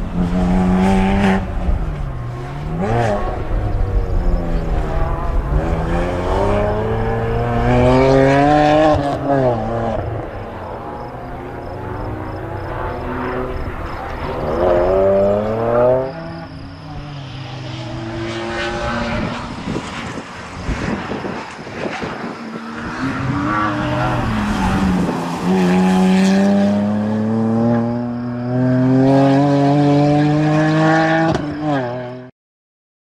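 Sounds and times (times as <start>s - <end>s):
car engine revving: 0.0s - 31.9s.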